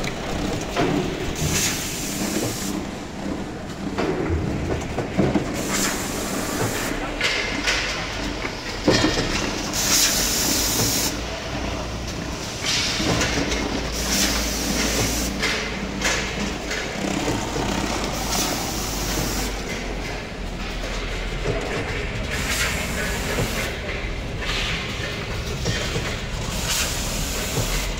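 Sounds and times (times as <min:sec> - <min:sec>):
machine works clattering: 0:00.0 - 0:27.9.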